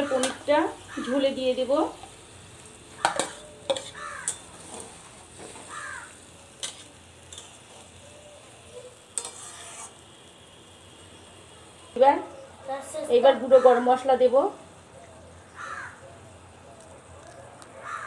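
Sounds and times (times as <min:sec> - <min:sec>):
gravy faint sizzle: 0:00.0 - 0:18.0
bowl and spoon knocking on pan: 0:03.0 - 0:04.4.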